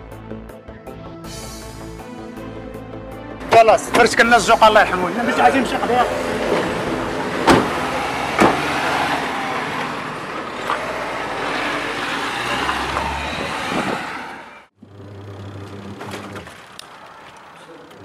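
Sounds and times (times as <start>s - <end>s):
van engine driving off: 3.6s - 18.0s
sharp knocks: 7.4s - 8.7s.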